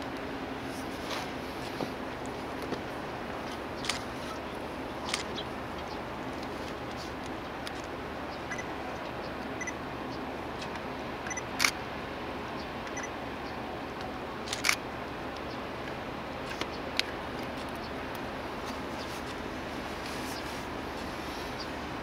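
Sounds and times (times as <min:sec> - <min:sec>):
steady background noise: 0:00.0 - 0:22.0
camera shutters clicking: 0:05.0 - 0:05.3, 0:14.5 - 0:14.8.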